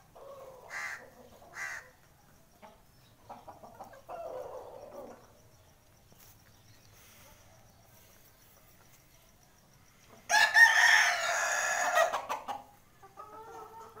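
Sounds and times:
rooster crowing: 10.3 - 12.2
hen clucking: 12.0 - 14.0.

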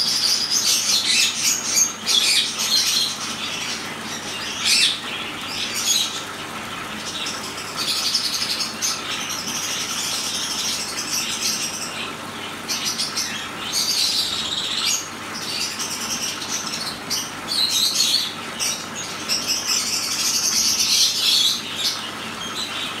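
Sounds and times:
birds twittering: 0.0 - 23.0
fountain trickling: 0.0 - 23.0.

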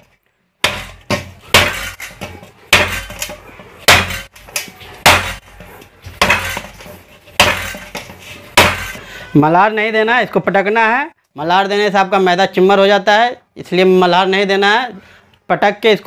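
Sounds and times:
dough slammed into steel bowl: 0.6 - 4.4, 5.0 - 5.4, 7.4 - 9.0.

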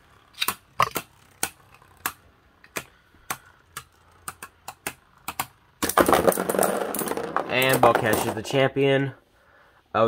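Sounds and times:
spinning tops clacking together: 3.7 - 8.5.

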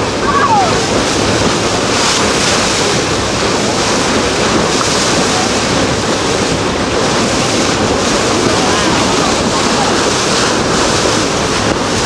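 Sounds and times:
sea water and waves rushing: 0.0 - 12.0
wind buffeting microphone: 0.0 - 12.0.

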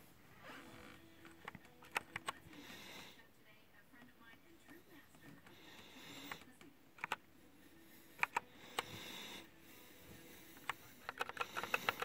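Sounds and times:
mechanical keyboard key clacks: 11.0 - 12.0.

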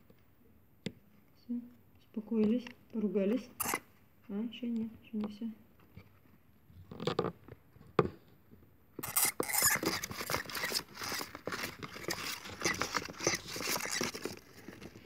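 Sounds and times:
claws scrabbling on cardboard: 9.0 - 15.0.

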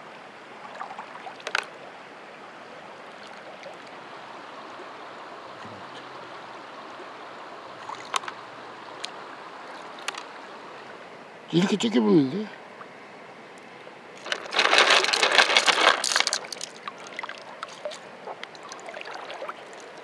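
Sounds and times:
stream water flowing: 0.0 - 20.0
splashes and clicks of net: 1.3 - 1.7, 7.8 - 8.4, 14.2 - 19.8.

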